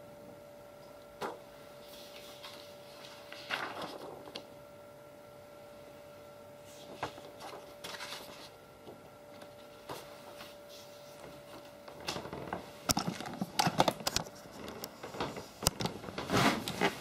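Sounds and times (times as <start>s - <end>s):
faint steady hum: 0.0s - 17.0s
paper rustling and tapping: 2.1s - 4.5s, 6.8s - 10.6s, 11.2s - 16.9s.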